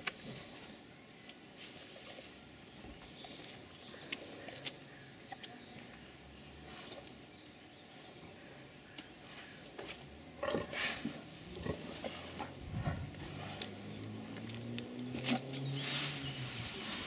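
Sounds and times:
leaves and twigs rustling: 0:00.0 - 0:05.5, 0:08.9 - 0:17.0.

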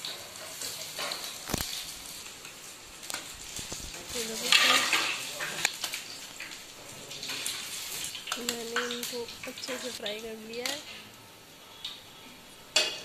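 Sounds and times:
hot oil sizzling: 0:00.0 - 0:13.0.

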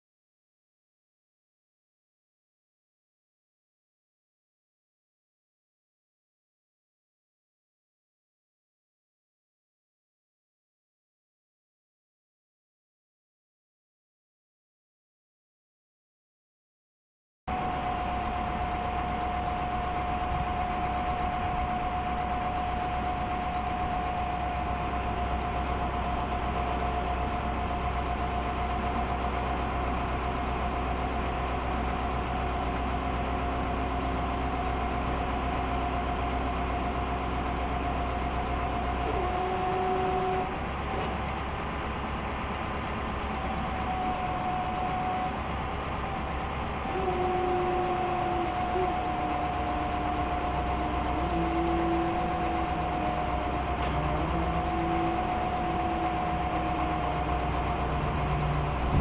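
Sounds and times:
diesel engine under load: 0:17.5 - 0:59.0
high hydraulic whine: 0:17.5 - 0:59.0.

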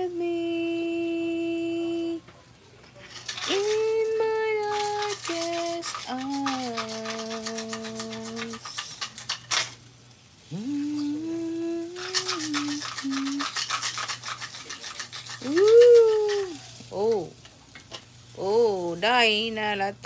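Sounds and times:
tongs on grill pan: 0:03.0 - 0:19.8
fish sizzling on grill pan: 0:03.0 - 0:20.0
voice holding notes: 0:10.5 - 0:13.4.

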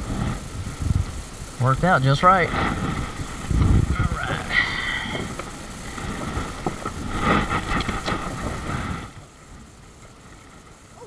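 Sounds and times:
water noise: 0:00.0 - 0:11.0
wind: 0:00.0 - 0:11.0
fishing gear rustling and knocking: 0:02.5 - 0:09.3.

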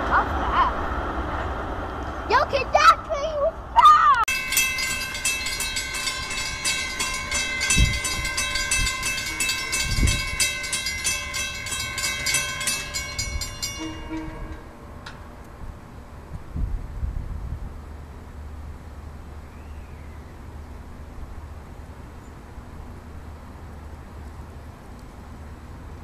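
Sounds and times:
railroad crossing bell ringing: 0:04.3 - 0:16.3.

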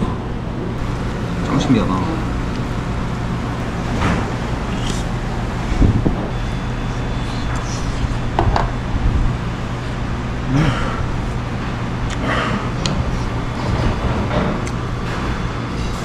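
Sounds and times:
restaurant room hum: 0:00.0 - 0:16.0
man humming mmm: 0:10.4 - 0:11.4.

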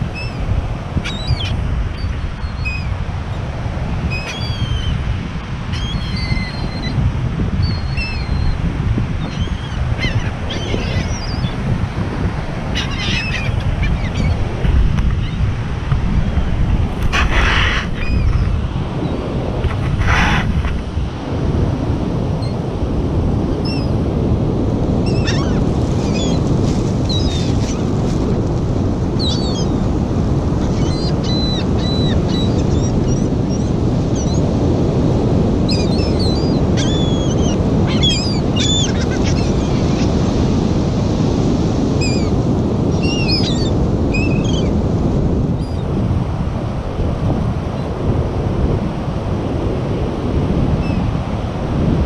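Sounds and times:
gulls calling: 0:00.0 - 0:03.5, 0:04.1 - 0:05.1, 0:05.7 - 0:07.0, 0:07.6 - 0:15.5, 0:17.1 - 0:20.8, 0:25.0 - 0:28.0, 0:29.1 - 0:34.5, 0:35.6 - 0:40.4, 0:42.0 - 0:44.8
wind buffeting microphone: 0:00.0 - 0:52.0
surf breaking: 0:11.6 - 0:22.0, 0:25.0 - 0:29.2.

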